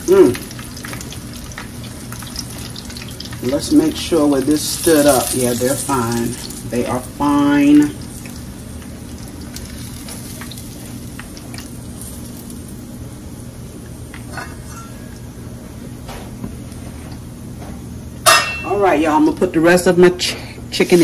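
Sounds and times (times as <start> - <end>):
chicken frying in hot oil: 0.0 - 13.6.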